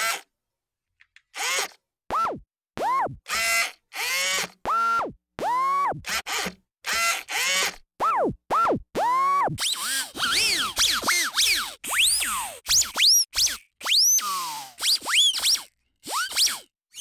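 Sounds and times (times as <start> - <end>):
quick whistling glides: 9.7 - 17.0.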